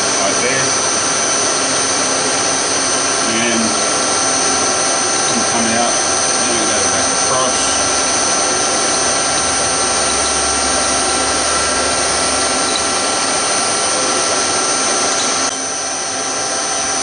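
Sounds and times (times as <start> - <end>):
milling machine motor whine: 0.0 - 16.5.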